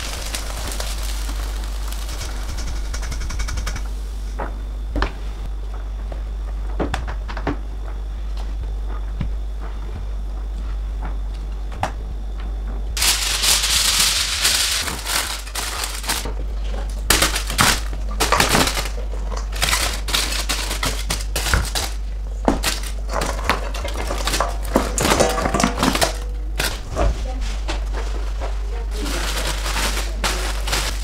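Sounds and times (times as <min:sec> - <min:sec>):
aluminium foil crinkling: 0:00.0 - 0:03.0, 0:13.0 - 0:31.0.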